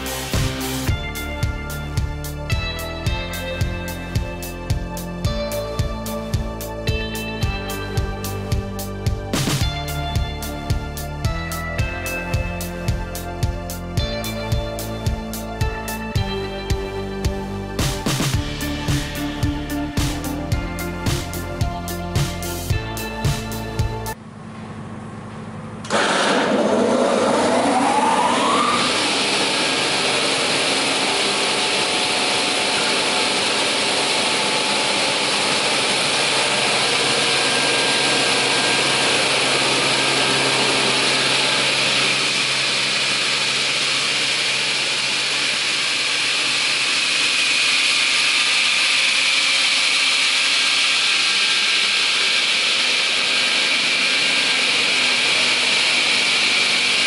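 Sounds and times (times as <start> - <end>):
saw motor whirring: 25.8 - 57.0.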